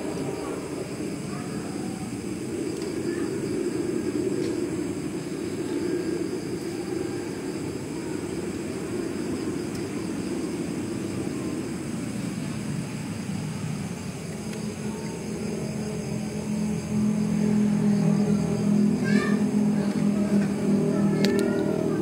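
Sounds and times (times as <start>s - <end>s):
low hum: 0.0s - 22.0s
low mechanical rumble: 0.0s - 22.0s.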